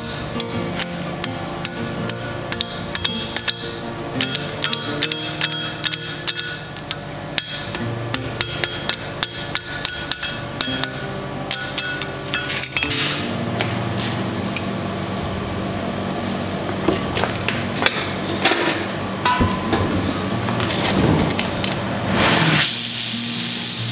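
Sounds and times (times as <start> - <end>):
hammer striking hot steel on anvil: 0.0 - 13.4, 17.8 - 20.1.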